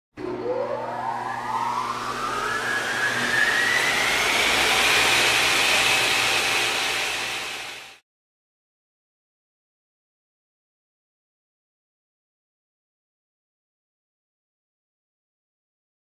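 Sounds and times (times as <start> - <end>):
synthesized rising whoosh: 0.2 - 6.9.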